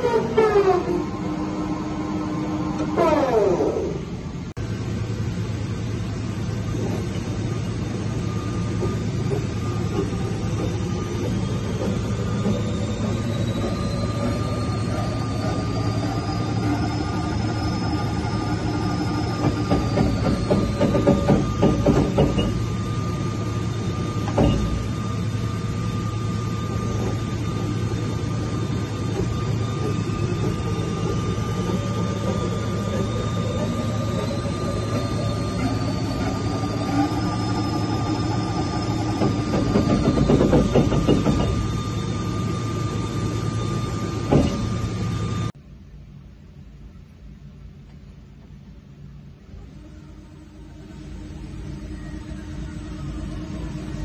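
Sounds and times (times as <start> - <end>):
drive whine: 0.0 - 54.0
steady machine hum: 0.0 - 54.0
lathe spindle turning: 7.2 - 45.5.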